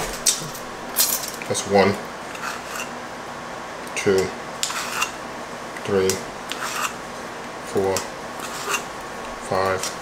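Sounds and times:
teaspoon scraping in a can: 0:02.3 - 0:03.0, 0:04.6 - 0:05.2, 0:06.5 - 0:07.0, 0:08.4 - 0:08.9.

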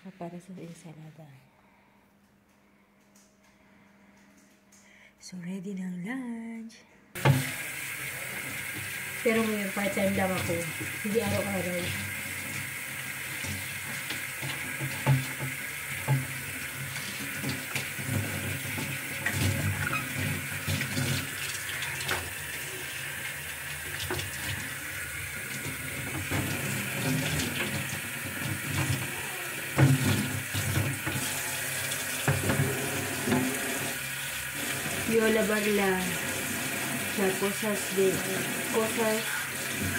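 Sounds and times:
tap running into a sink: 0:07.2 - 0:34.0.

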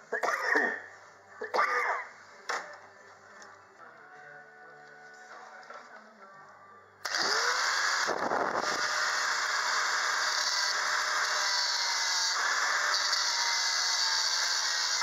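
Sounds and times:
angle grinder running: 0:07.1 - 0:15.0.

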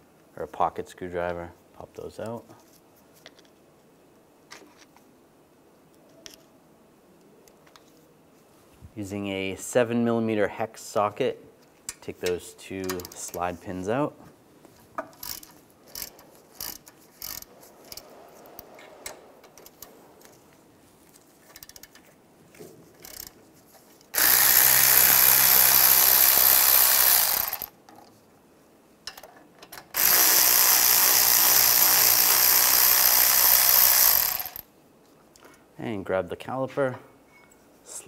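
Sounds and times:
power ratchet running: 0:24.2 - 0:27.7, 0:30.0 - 0:34.6.

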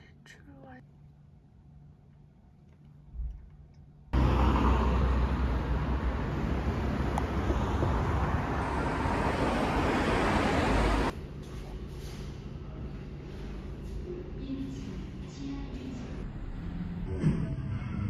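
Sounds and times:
road traffic rumble: 0:04.1 - 0:11.2.

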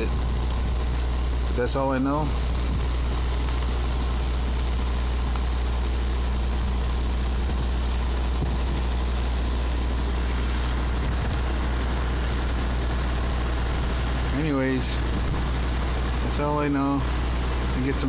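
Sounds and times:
engine idling: 0:00.0 - 0:18.0.

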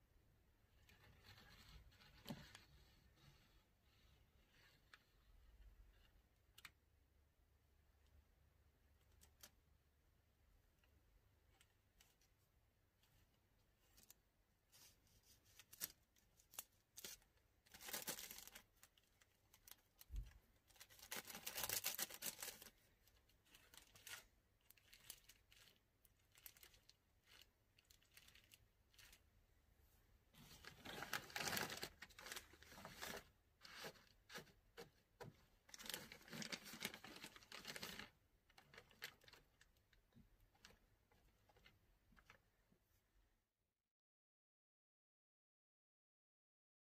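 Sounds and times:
plastic bag crinkling: 0:15.6 - 0:29.3, 0:30.4 - 0:34.9, 0:35.6 - 0:39.8.

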